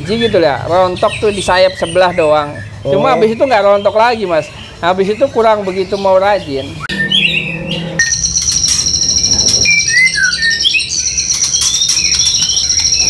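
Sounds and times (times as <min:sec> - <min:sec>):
songbirds chirping and calling: 0:00.0 - 0:13.0
shrill high-pitched trill: 0:06.9 - 0:13.0.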